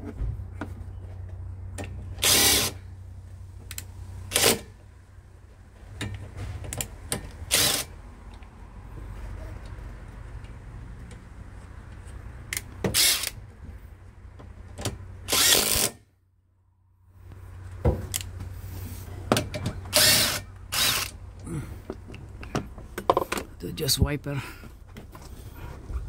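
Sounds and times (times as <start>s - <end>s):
cordless power tool bursts: 2.2s - 2.8s, 7.5s - 7.9s, 12.9s - 13.4s, 15.3s - 16.0s, 19.9s - 21.1s.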